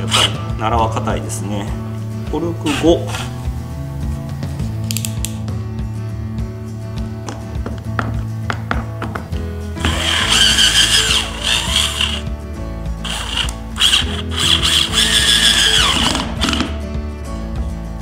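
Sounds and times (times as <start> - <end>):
background music: 0.0 - 18.0
cordless drill whining: 0.1 - 0.4, 9.8 - 12.3, 13.0 - 16.7.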